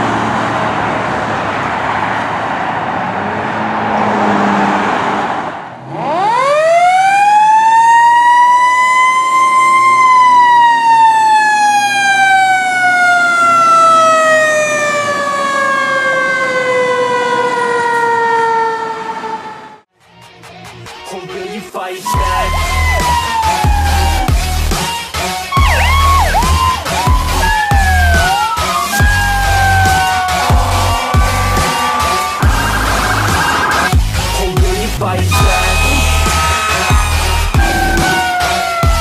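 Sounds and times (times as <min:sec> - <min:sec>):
road traffic noise: 0:00.0 - 0:39.0
mechanical fire siren wailing: 0:06.0 - 0:19.8, 0:22.1 - 0:24.7, 0:25.5 - 0:34.0, 0:35.3 - 0:39.0.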